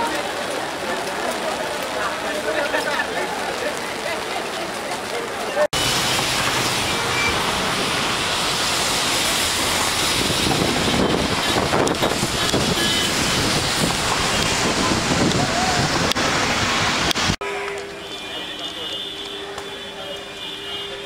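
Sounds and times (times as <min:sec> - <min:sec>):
wind and rain rushing: 0:00.0 - 0:17.5
wind buffeting microphone: 0:09.8 - 0:17.4.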